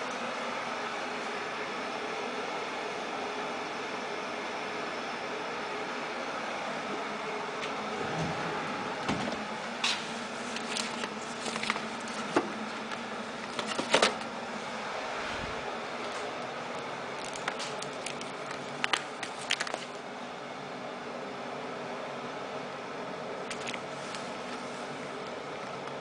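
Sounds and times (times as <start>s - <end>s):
packaging crinkling: 9.9s - 14.4s, 15.9s - 20.0s, 23.4s - 24.8s.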